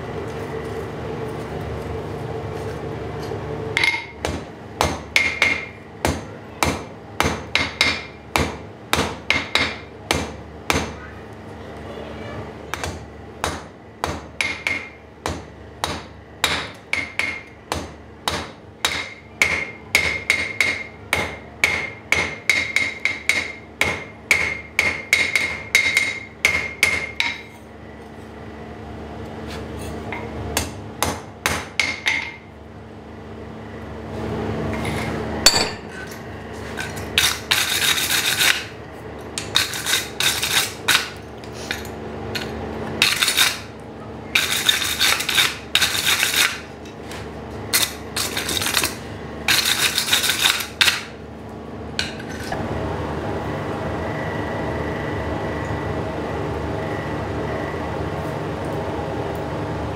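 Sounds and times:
hammer striking steel on anvil: 3.8 - 11.0, 12.7 - 27.6, 30.1 - 32.5, 35.4 - 36.2
wire brush scrubbing metal: 36.7 - 38.7.

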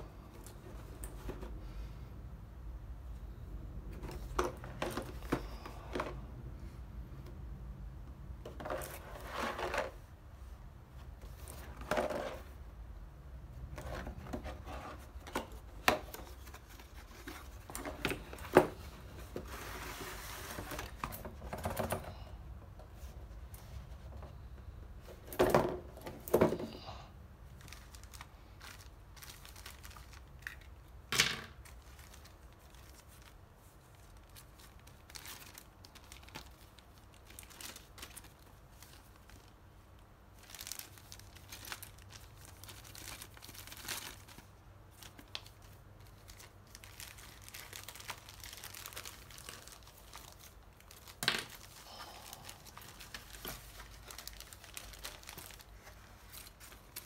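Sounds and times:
plastic bags crinkling: 27.5 - 30.9, 31.5 - 57.0.

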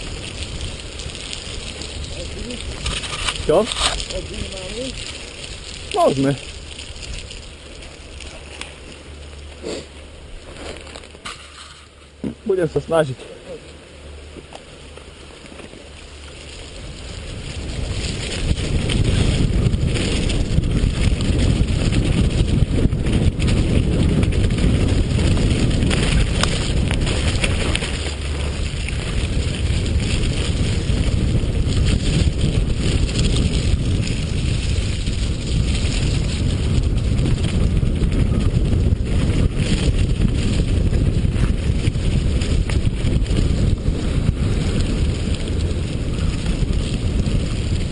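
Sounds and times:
tyres rumbling on dirt: 0.0 - 47.9
wind buffeting microphone: 0.0 - 47.9
bike knocks and rattles: 10.5 - 12.4.

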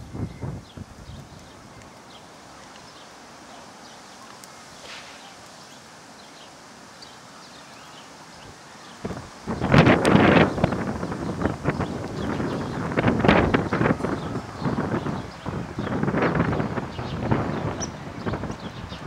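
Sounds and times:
light wind: 0.0 - 19.0
soft high ticks: 1.2 - 3.0.

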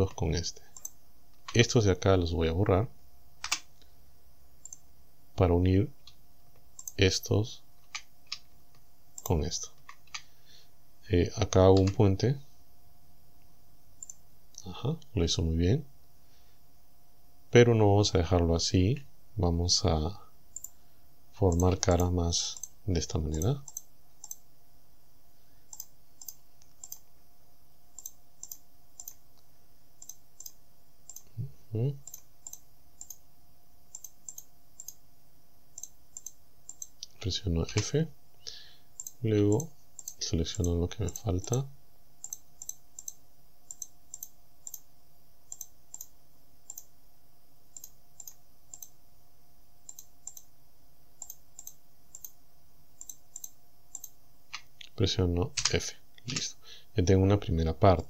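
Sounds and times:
computer mouse clicking: 0.7 - 1.6, 3.4 - 3.9, 4.6 - 4.8, 6.8 - 7.0, 11.7 - 12.0, 14.0 - 14.2, 20.5 - 20.8, 21.5 - 24.4, 25.7 - 27.0, 28.0 - 29.2, 30.0 - 31.3, 32.0 - 33.2, 33.9 - 35.0, 35.8 - 37.2, 39.0 - 41.6, 42.2 - 44.9, 45.5 - 46.9, 47.7 - 49.0, 49.8 - 50.5, 51.2 - 52.4, 53.0 - 54.7.

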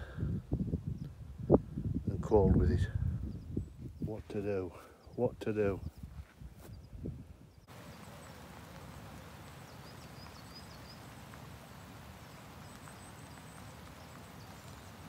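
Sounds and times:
rain on water and leaves: 7.7 - 15.0.

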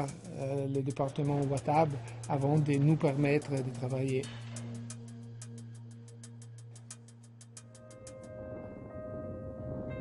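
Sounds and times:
fast ticking beat: 0.0 - 7.8
low drone: 0.1 - 10.0.

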